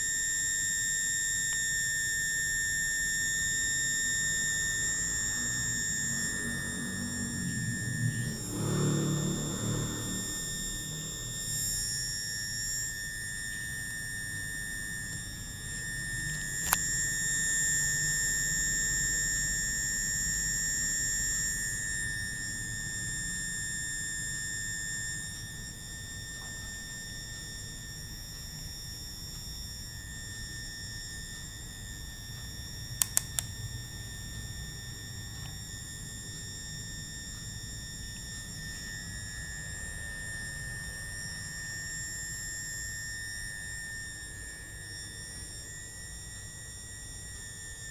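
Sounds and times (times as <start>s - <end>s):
high-pitched electronic whine: 0.0s - 47.9s
sharp clicks: 33.0s - 33.5s.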